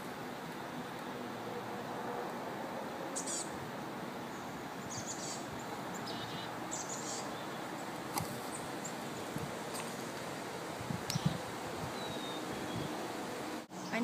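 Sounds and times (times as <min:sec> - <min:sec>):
outdoor background hiss: 0:00.0 - 0:14.0
small birds chirping: 0:03.2 - 0:03.6, 0:04.2 - 0:10.3, 0:10.9 - 0:14.0.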